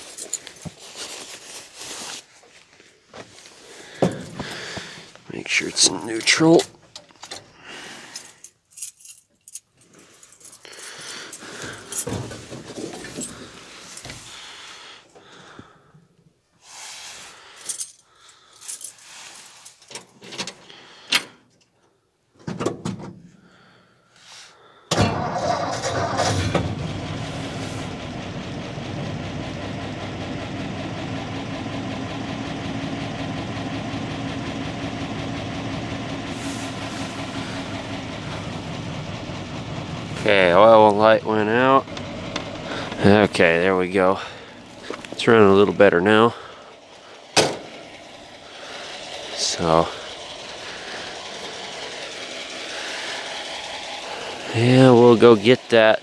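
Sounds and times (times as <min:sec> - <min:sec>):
pickup engine starting and idling: 0:10.9 - 0:15.8, 0:24.9 - 0:56.0.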